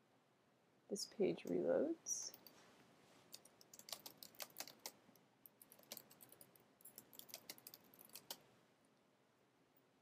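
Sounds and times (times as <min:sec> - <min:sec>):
keyboard typing: 0:03.3 - 0:08.4.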